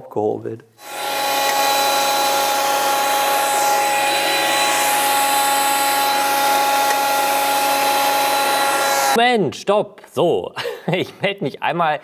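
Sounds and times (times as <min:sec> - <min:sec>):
planer motor whining: 0:00.8 - 0:09.2.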